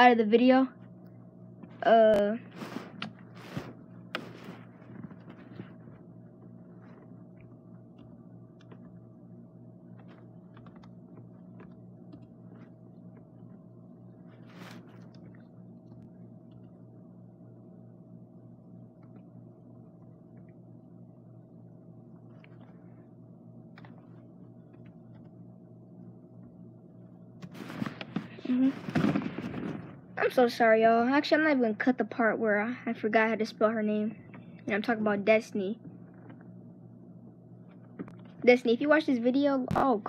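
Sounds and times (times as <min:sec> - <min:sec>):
faint electrical hum: 0:00.0 - 0:40.0
faint clicks and taps: 0:02.9 - 0:09.1, 0:09.9 - 0:13.7, 0:14.4 - 0:16.8, 0:18.9 - 0:20.7, 0:22.1 - 0:22.9, 0:23.7 - 0:25.4, 0:37.7 - 0:38.5.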